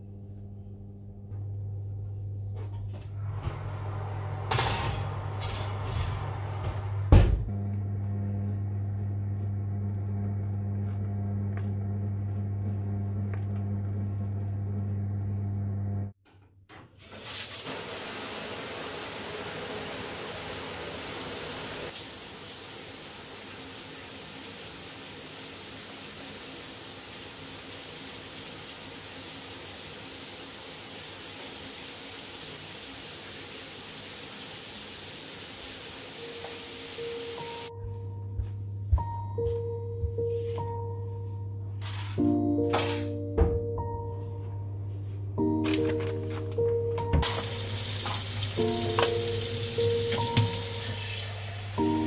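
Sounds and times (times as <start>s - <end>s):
fan oven humming: 0.0s - 16.2s, 17.7s - 52.0s
shower spray hissing: 17.1s - 37.7s, 47.2s - 52.0s.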